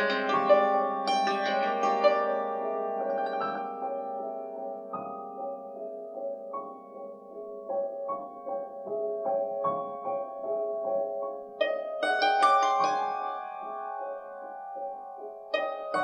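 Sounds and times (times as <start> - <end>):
hammered dulcimer notes: 0.0 - 4.2
slow classical piano: 0.0 - 16.0.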